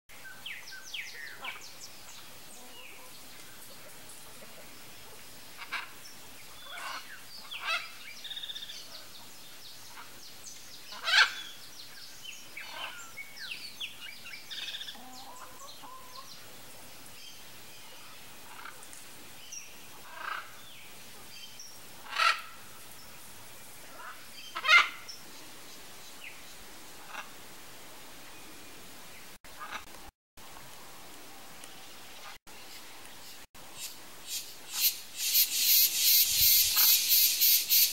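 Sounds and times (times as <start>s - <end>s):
macaw squawking: 11.0s - 11.5s, 22.1s - 22.5s, 24.0s - 25.0s.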